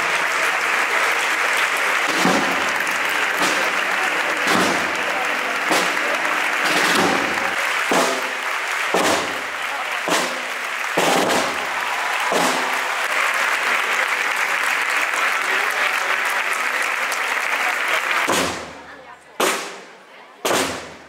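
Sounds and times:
large crowd applauding: 0.0 - 19.1.

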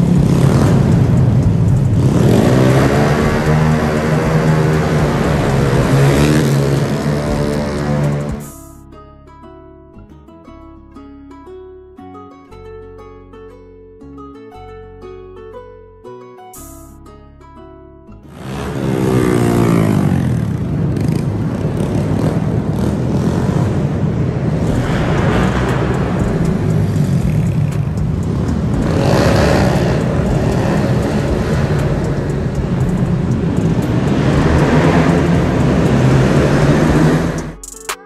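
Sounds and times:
motorcycle engines revving: 0.0 - 8.8, 18.3 - 38.0.

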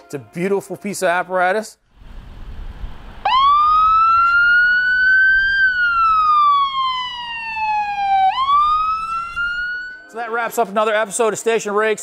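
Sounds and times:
low rumble: 1.9 - 4.0
electronic siren wailing: 3.2 - 10.1.

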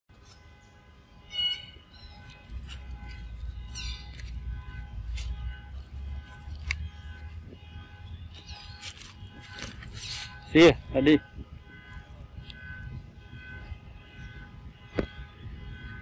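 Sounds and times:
monkey squeaks: 1.3 - 4.4, 8.4 - 10.5
dry leaves crackling and rustling: 2.0 - 7.5, 8.3 - 10.8.

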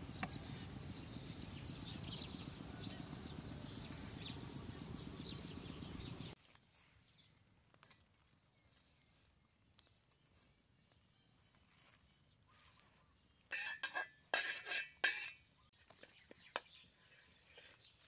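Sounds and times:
birds chirping: 0.0 - 6.4.

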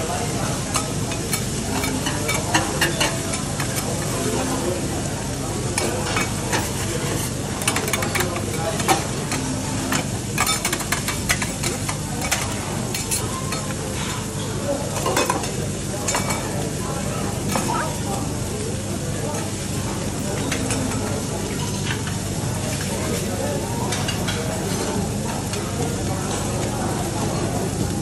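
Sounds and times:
spatulas clicking on hotplate: 0.6 - 4.5, 5.7 - 13.8
metal spatulas scraping hotplate: 5.8 - 9.0.

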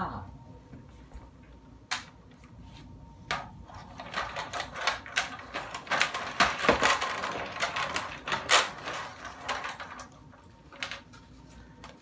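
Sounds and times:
plastic bones and chains rattling: 4.0 - 11.0.

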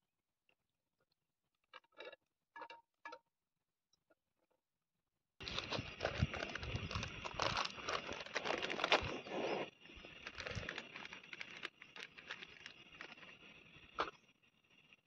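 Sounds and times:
plastic packets crinkling: 5.4 - 13.3.

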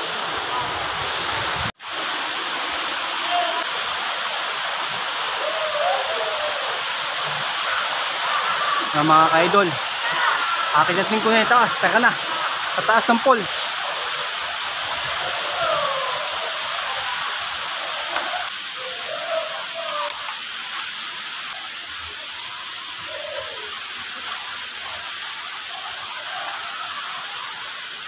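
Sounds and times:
waterfall rushing: 0.0 - 28.0.

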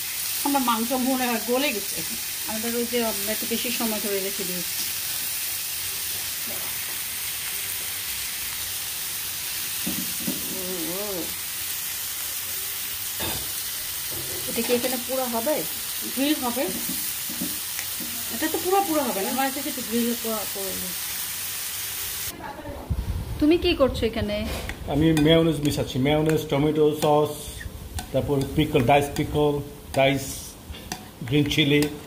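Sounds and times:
meat sizzling: 0.0 - 22.4, 24.7 - 32.0
person speaking: 24.9 - 30.6.

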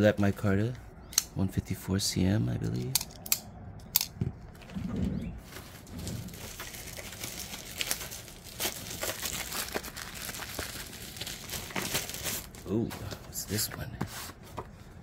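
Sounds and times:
packaging crinkling and rustling: 5.4 - 13.9.

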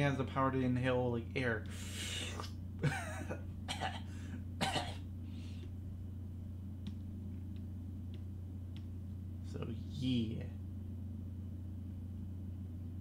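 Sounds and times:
steady low hum: 0.0 - 13.0
man coughing: 2.2 - 5.0
soft breath: 5.2 - 5.8.

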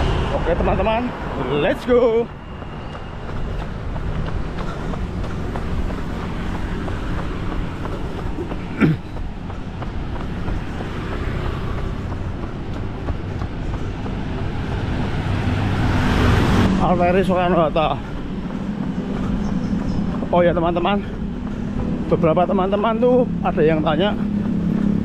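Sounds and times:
road traffic rumble: 0.0 - 25.0
wind: 0.0 - 25.0
light footfalls: 2.2 - 15.4, 17.5 - 25.0.

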